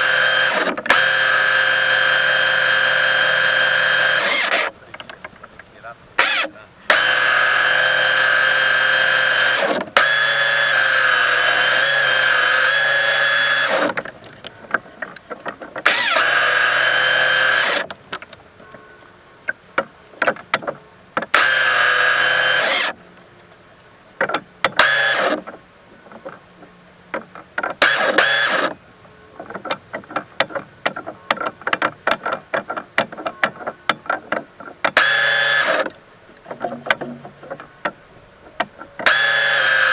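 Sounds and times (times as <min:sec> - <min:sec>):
small electric motor whining: 0:00.0 - 0:04.8, 0:06.2 - 0:19.5, 0:20.1 - 0:23.0, 0:24.6 - 0:25.5, 0:27.8 - 0:29.6, 0:34.9 - 0:36.0, 0:36.8 - 0:39.9
rapid irregular ticks and knocks: 0:11.8 - 0:16.9, 0:24.2 - 0:28.8, 0:29.4 - 0:39.8.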